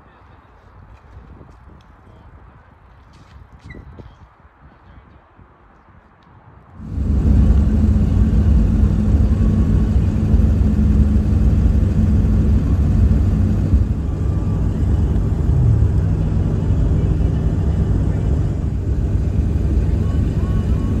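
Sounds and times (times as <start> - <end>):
road noise: 4.3 - 21.0
truck engine rumble: 6.8 - 21.0.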